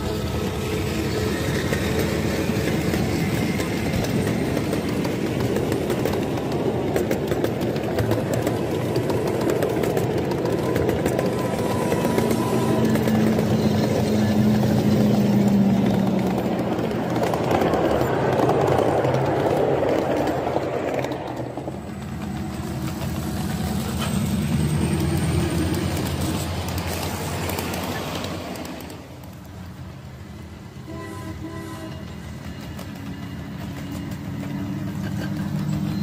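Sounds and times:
wheels clicking over rail joints: 0:00.0 - 0:29.8, 0:32.0 - 0:36.0
locomotive humming: 0:00.0 - 0:36.0
small steel wheels rumbling on rails: 0:00.0 - 0:36.0.

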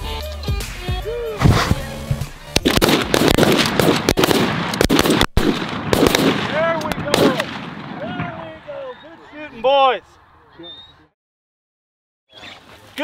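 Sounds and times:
shotgun blasts: 0:02.5 - 0:08.4.

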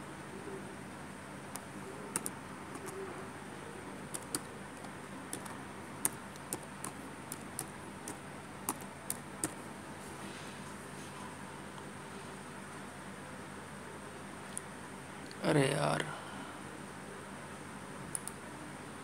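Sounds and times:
steady low hiss: 0:00.0 - 0:19.0
keyboard keystrokes: 0:01.5 - 0:03.0, 0:04.1 - 0:09.6.

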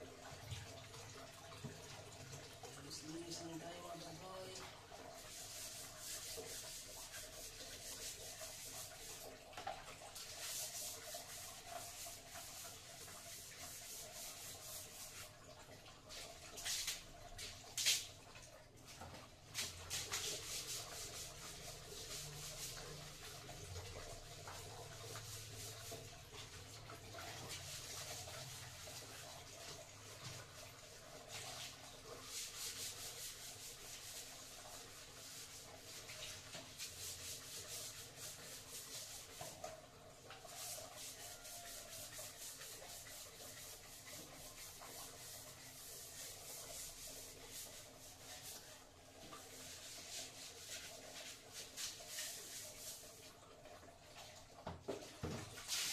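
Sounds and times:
scrubbing tiles by hand: 0:05.2 - 0:15.3, 0:16.1 - 0:18.2, 0:18.9 - 0:53.2.

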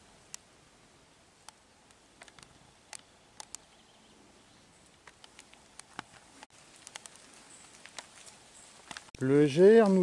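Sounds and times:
faint sharp clicks: 0:01.4 - 0:03.7, 0:04.8 - 0:09.2.

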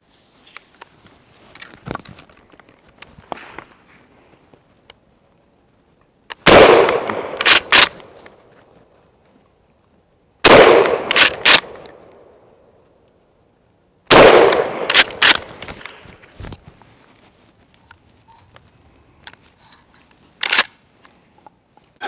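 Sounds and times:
shotgun shots: 0:06.4 - 0:08.0, 0:10.4 - 0:11.9, 0:14.1 - 0:15.6.

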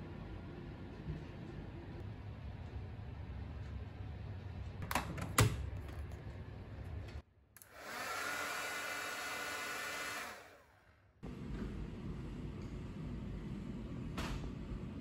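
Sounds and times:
hair dryer fan whine: 0:07.6 - 0:10.7.

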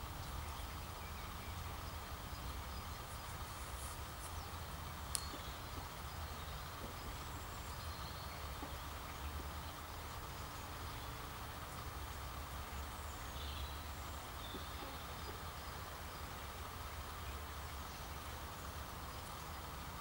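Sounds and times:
faint bird chirps: 0:00.2 - 0:12.0, 0:12.7 - 0:19.6
sharp click: 0:05.1 - 0:05.4.

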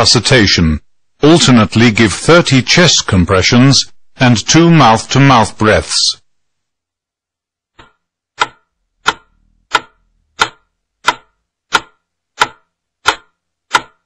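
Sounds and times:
metronome ticking: 0:07.8 - 0:14.0.

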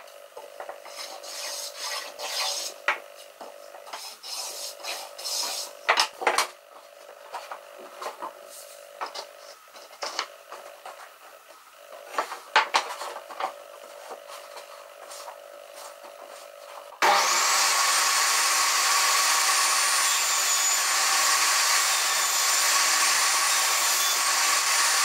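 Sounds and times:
hand sanding wood: 0:00.8 - 0:02.8, 0:03.9 - 0:05.8.

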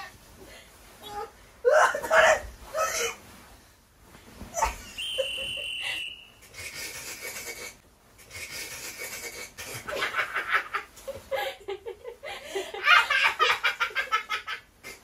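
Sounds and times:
woman giggling breathily: 0:11.1 - 0:13.2.

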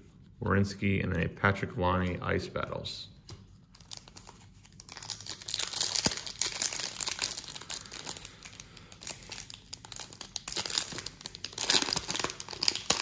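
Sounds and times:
foil wrapper crinkling and tearing: 0:03.8 - 0:13.0.

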